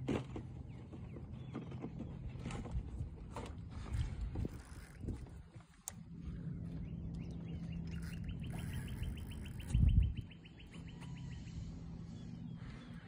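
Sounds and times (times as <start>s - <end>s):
fishing reel clicking: 4.4s - 5.4s, 7.9s - 9.8s.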